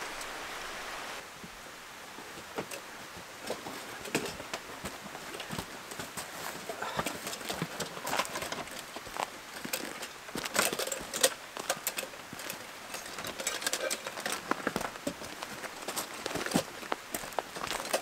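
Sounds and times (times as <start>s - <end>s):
jacket and backpack rustling: 3.2s - 18.0s
footsteps crunching on snow: 3.5s - 13.2s, 13.9s - 18.0s.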